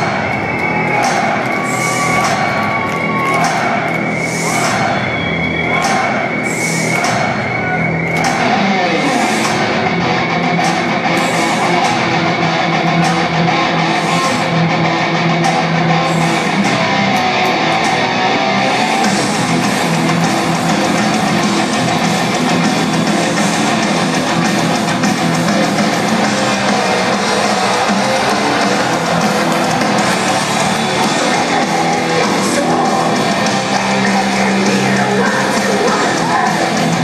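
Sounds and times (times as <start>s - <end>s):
heavy metal band playing live: 0.0s - 37.0s.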